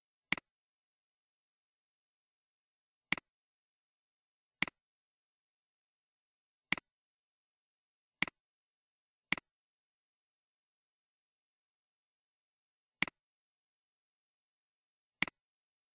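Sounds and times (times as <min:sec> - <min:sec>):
computer mouse clicks: 0:00.3 - 0:00.5, 0:06.7 - 0:06.9.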